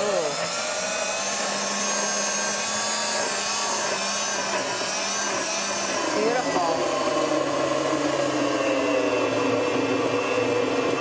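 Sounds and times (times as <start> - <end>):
blender motor running: 0.0 - 11.0.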